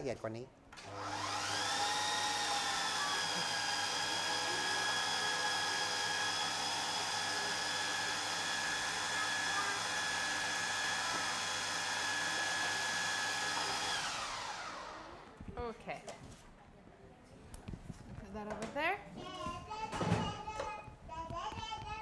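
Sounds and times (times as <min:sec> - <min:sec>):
food processor whining: 0:00.8 - 0:15.4
motor spinning down: 0:00.8 - 0:15.4.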